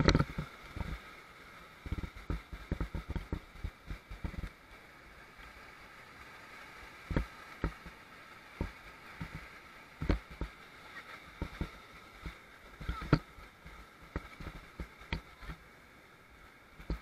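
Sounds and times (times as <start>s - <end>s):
rushing whitewater: 0.0s - 17.0s
thumps on microphone: 10.0s - 10.5s, 11.4s - 13.3s.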